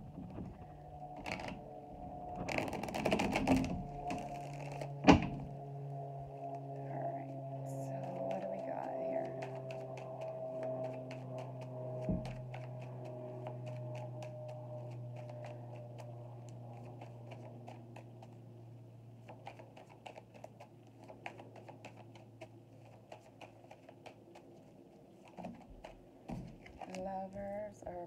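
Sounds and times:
low steady tone: 0.0s - 17.6s
cards being shuffled: 2.5s - 5.0s, 7.4s - 18.5s, 19.2s - 27.0s.

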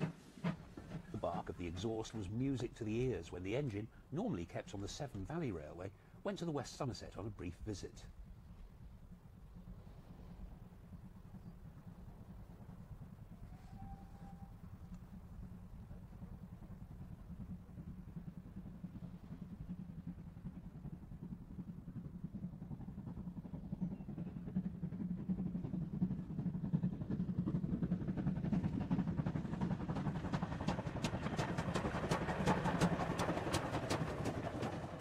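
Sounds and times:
steam locomotive rumbling: 0.0s - 35.0s
wheels clicking rapidly: 14.6s - 35.0s.

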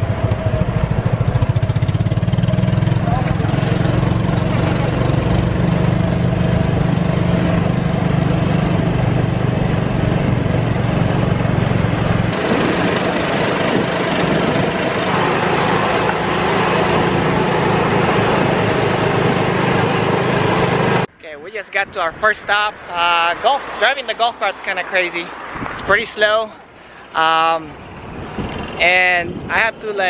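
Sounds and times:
golf cart engine hum: 0.0s - 21.1s
road and wind noise: 0.0s - 30.0s.

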